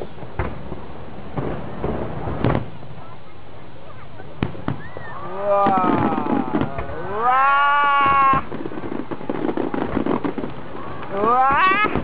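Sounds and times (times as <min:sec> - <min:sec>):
fireworks popping and crackling: 0:00.0 - 0:03.2, 0:03.8 - 0:12.0
spectators exclaiming in wonder: 0:04.0 - 0:08.6, 0:10.7 - 0:12.0.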